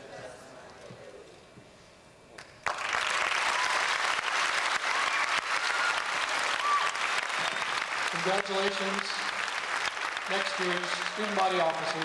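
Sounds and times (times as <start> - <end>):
audience applauding: 2.4 - 12.0
short whistles: 7.4 - 7.8.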